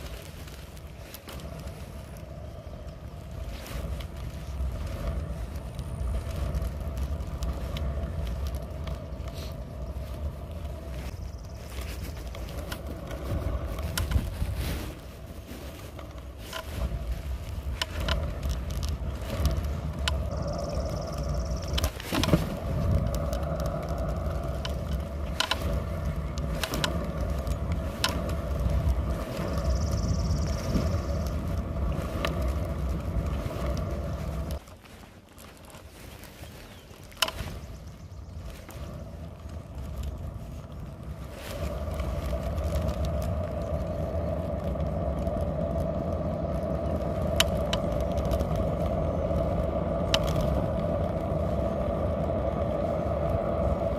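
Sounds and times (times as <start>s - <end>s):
scooter wheels rolling on asphalt: 0.0s - 53.9s
wheels knocking over bumps: 1.2s - 34.6s.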